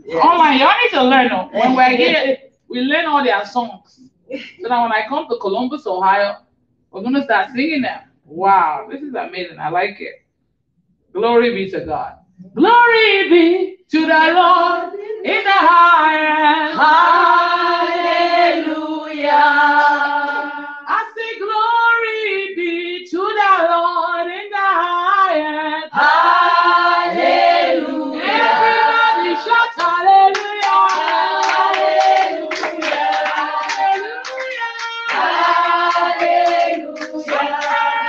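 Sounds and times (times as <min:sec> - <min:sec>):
women singing together: 0:12.7 - 0:38.0
hand clapping: 0:29.8 - 0:38.0.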